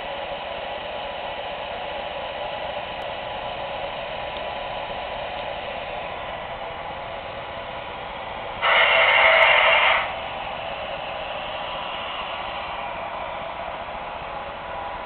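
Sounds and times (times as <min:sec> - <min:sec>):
model trains hissing: 0:00.0 - 0:15.0
loud burst of hissing: 0:08.6 - 0:13.2.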